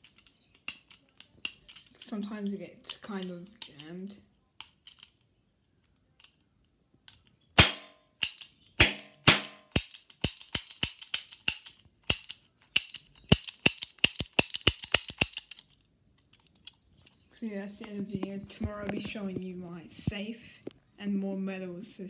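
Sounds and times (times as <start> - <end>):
cap gun cracks: 7.1 - 15.6.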